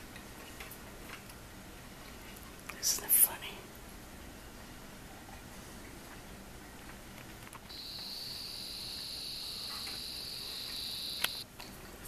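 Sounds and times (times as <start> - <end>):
insect singing high note: 7.7 - 11.4
sharp click: 11.2 - 11.4.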